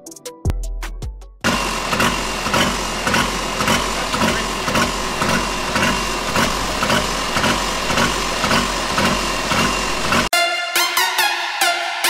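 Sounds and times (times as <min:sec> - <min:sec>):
tractor engine idling: 0:01.4 - 0:10.3.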